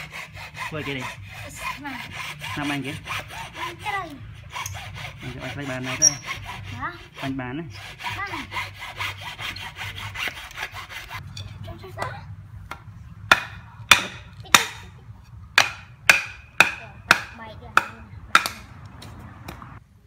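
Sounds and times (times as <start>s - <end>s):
hacksaw cutting wood: 0.0s - 11.2s, 13.3s - 14.8s, 15.6s - 18.7s
wood striking wood: 12.6s - 14.9s, 15.5s - 19.7s.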